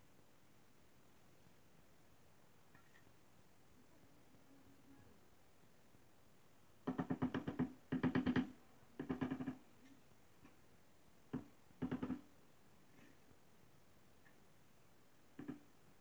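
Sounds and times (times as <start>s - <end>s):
wooden handle knocking on tile: 11.3s - 12.3s, 15.4s - 15.7s.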